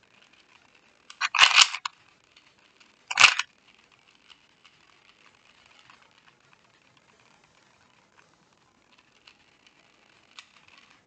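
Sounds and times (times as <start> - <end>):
puzzle cube clicking turns: 0.2 - 6.3.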